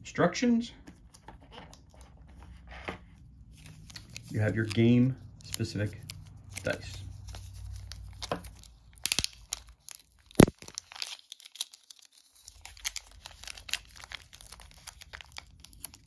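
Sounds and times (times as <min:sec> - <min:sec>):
plastic wrapping crinkling and tearing: 0:03.5 - 0:16.0.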